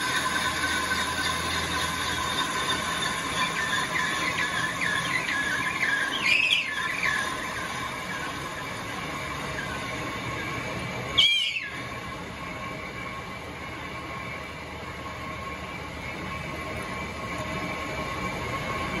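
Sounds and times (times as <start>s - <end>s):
cutting tool squealing on steel: 0.0s - 8.6s, 11.1s - 11.9s
lathe machine whine: 0.0s - 19.0s.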